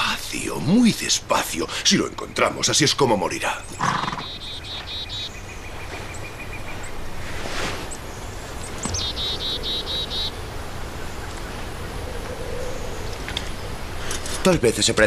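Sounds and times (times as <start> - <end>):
breathy rush of noise: 0.0 - 2.3, 5.4 - 8.8
songbird trilling: 2.3 - 7.1, 7.9 - 14.2.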